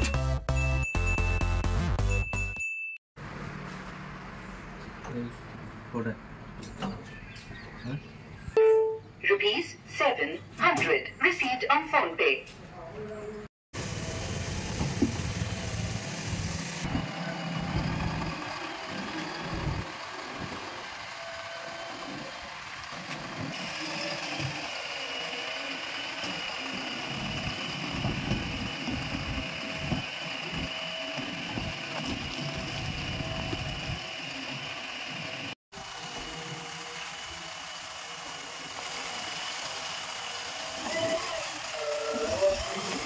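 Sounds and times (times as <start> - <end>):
diesel engine running: 13.8 - 43.0.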